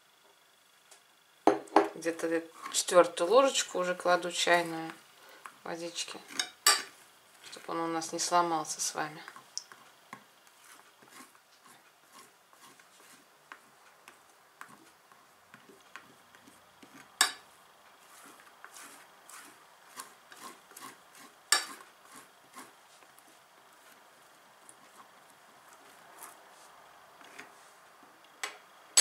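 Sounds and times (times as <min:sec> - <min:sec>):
spoon scraping tortilla on plate: 0:09.3 - 0:27.6.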